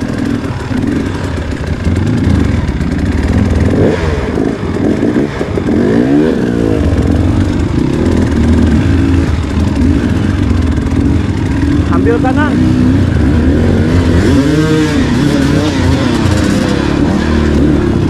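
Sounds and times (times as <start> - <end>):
dirt bike engine revving: 0.0 - 18.0.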